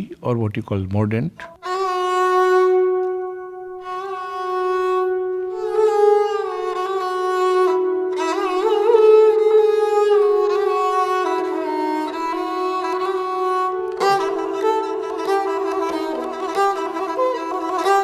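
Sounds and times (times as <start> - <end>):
bowed sarangi long notes: 1.5 - 18.0.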